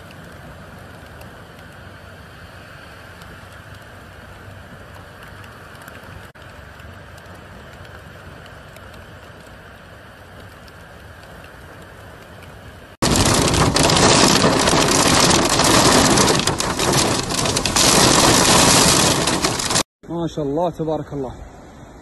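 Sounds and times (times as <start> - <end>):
traffic on wet road: 0.0 - 19.8
heavy rain roaring: 12.6 - 19.9
wind gusting on microphone: 13.0 - 19.8.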